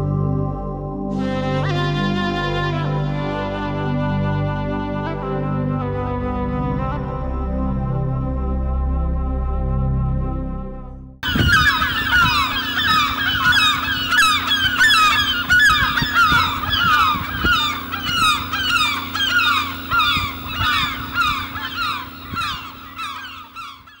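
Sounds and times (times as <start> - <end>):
geese honking: 11.2 - 24.0.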